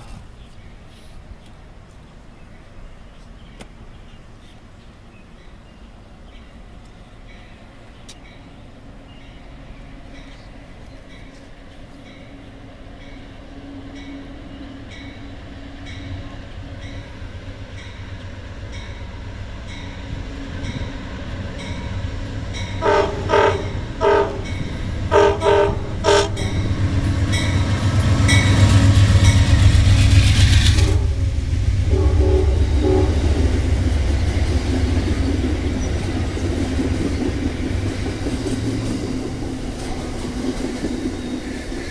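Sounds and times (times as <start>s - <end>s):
train cars rumble and wheel clatter: 0.0s - 41.9s
locomotive heavy rumble: 15.4s - 41.9s
train horn blasts: 22.7s - 29.8s, 30.6s - 33.6s.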